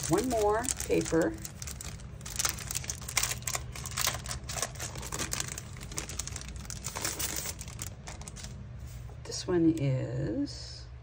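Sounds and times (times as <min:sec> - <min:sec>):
packaging crinkling: 0:00.0 - 0:08.6.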